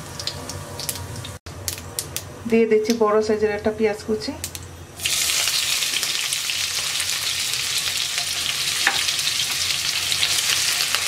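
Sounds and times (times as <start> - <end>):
onion sizzling in hot oil: 0.0 - 1.8, 4.5 - 11.0.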